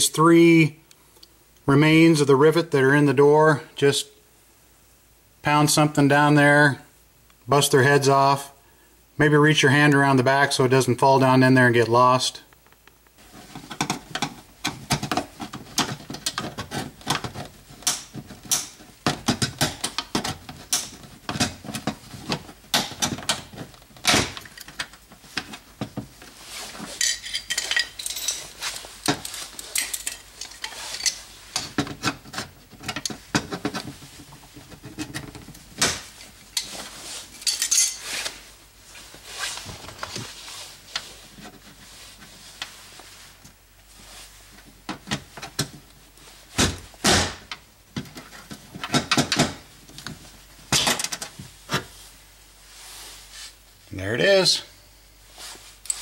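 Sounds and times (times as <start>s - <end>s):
metallic knocks and clinks: 27.0s - 28.5s.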